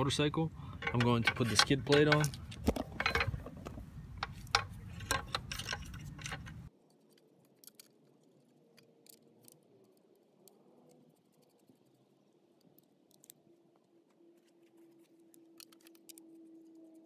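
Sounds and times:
metal clicks and clinks: 0.8 - 3.4, 4.2 - 8.0.

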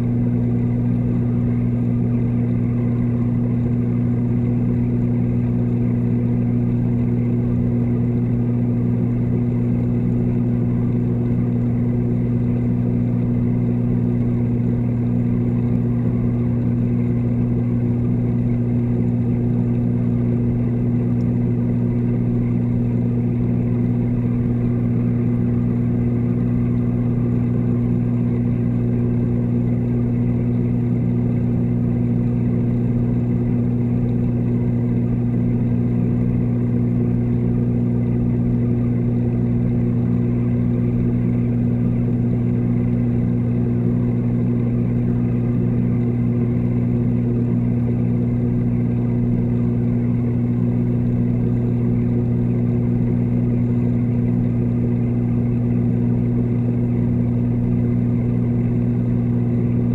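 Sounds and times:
water pumps humming underwater: 0.0 - 59.9.

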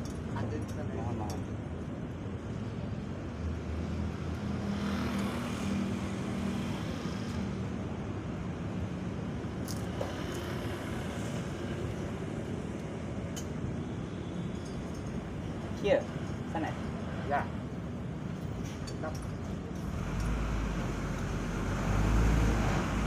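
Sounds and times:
traffic rumble: 0.0 - 23.0
vehicle engine passing: 19.8 - 23.0.

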